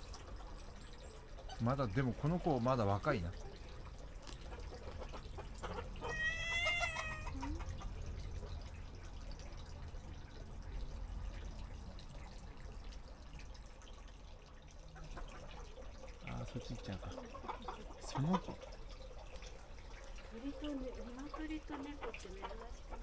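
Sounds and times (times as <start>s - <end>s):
water trickling: 0.0s - 23.0s
cat meowing: 6.0s - 7.5s.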